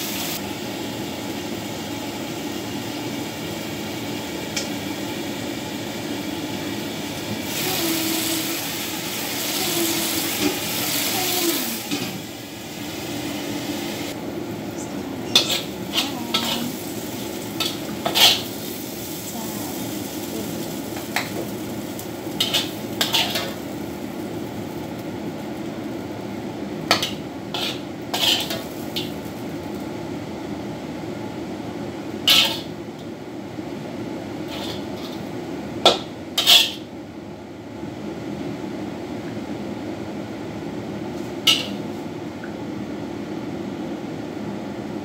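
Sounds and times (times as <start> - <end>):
extractor fan humming: 0.0 - 45.0
metal spatula scraping wok: 15.3 - 16.8, 17.6 - 18.5, 22.4 - 23.6, 27.0 - 28.7, 34.5 - 35.2, 36.4 - 36.8.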